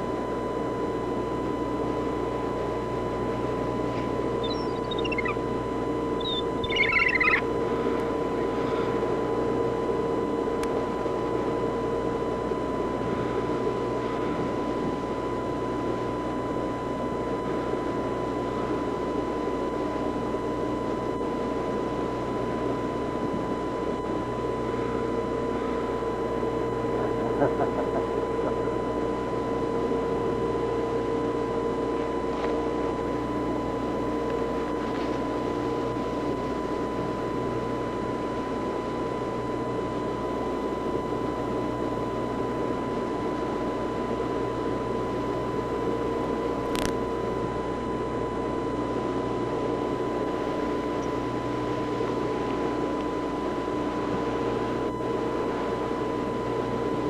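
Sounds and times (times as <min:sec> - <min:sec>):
boat engine droning: 0:00.0 - 0:45.8
constant high tone: 0:04.3 - 0:07.6.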